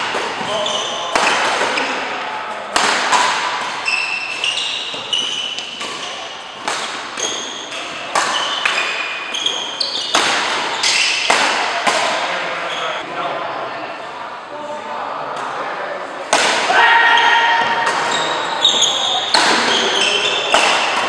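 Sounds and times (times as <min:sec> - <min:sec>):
rackets hitting shuttlecock: 0:00.0 - 0:12.5, 0:16.3 - 0:21.0
shoe squeaks on court floor: 0:00.3 - 0:01.9, 0:03.8 - 0:06.5, 0:07.2 - 0:11.3, 0:18.0 - 0:21.0.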